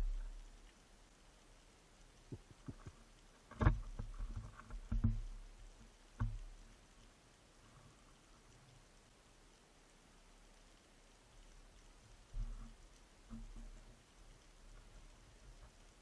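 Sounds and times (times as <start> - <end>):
underwater knocks and thumps: 0.0 - 0.4, 2.3 - 6.6, 12.3 - 14.0.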